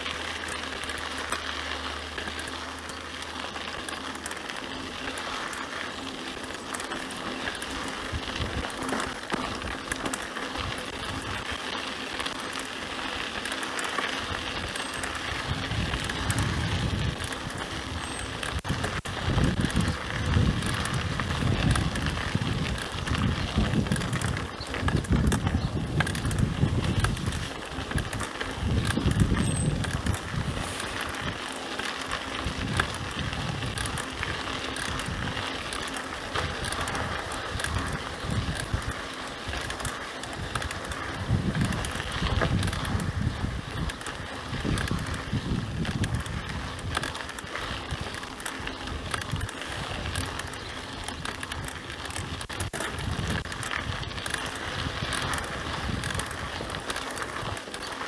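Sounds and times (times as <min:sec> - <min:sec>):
bike clicks and rattles: 0:00.0 - 0:58.0
tyres crunching on dirt: 0:00.0 - 0:58.0
wind rumble on microphone: 0:08.0 - 0:09.8, 0:14.3 - 0:31.4, 0:32.1 - 0:57.7.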